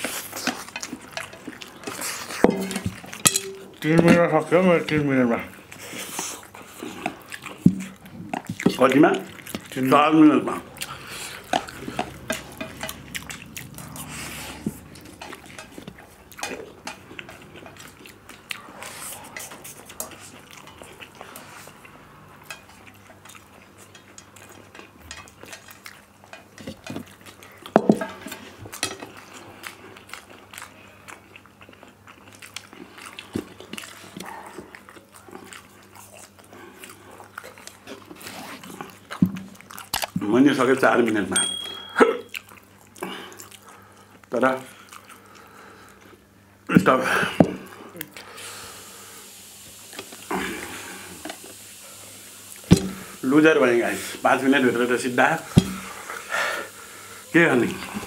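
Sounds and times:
chewing and biting: 0.0s - 40.3s, 42.2s - 46.2s
chopsticks tapping steel plates: 0.4s - 4.3s, 11.5s - 13.3s, 14.8s - 17.4s, 22.4s - 22.8s, 41.4s - 42.3s.

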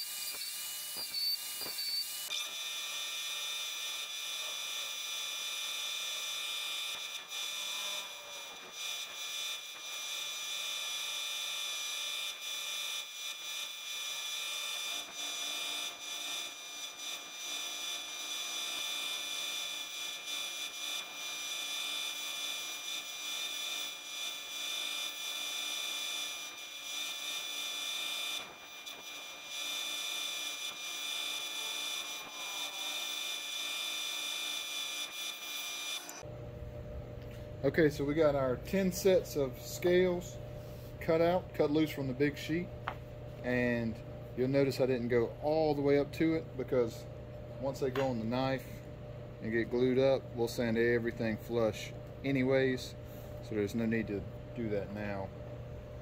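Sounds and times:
belt grinder sanding: 0.0s - 36.2s
low hum: 36.2s - 56.0s.

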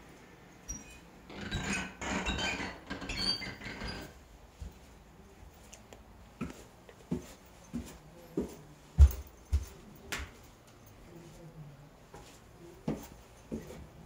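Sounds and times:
footsteps on wooden stairs: 6.4s - 10.3s.

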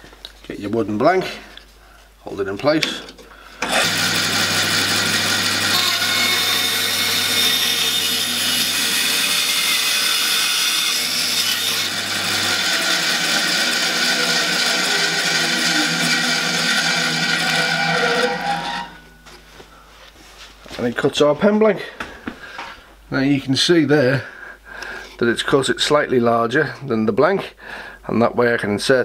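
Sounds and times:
bandsaw cutting wood: 3.6s - 19.2s
low hum: 11.9s - 19.6s.

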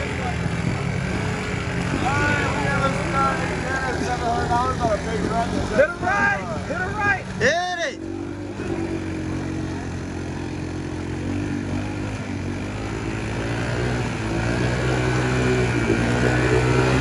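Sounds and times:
atv engine at high revs: 0.0s - 17.0s.

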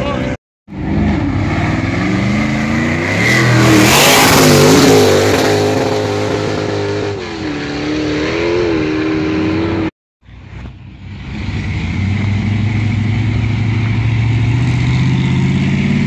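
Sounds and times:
race car engine revving: 0.7s - 9.9s.

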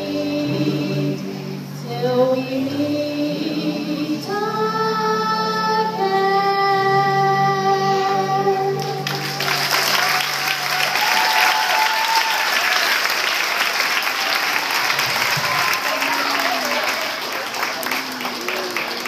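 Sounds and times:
choir singing: 0.0s - 11.0s
crowd applauding: 8.8s - 19.0s.

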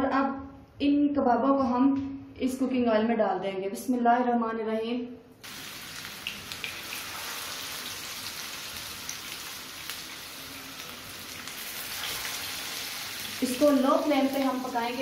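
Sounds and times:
kebabs sizzling in oil: 5.4s - 15.0s.

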